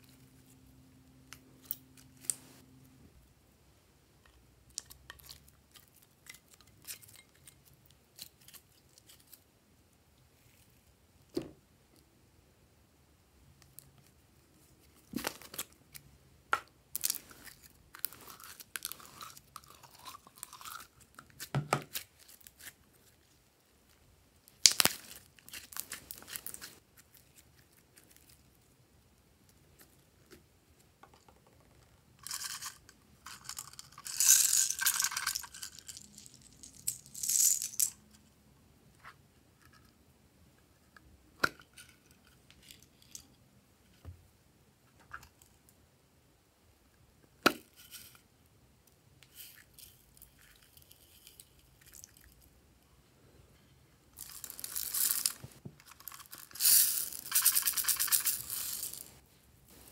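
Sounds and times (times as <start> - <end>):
small plastic pieces rattling: 32.3 - 38.0, 54.2 - 59.2.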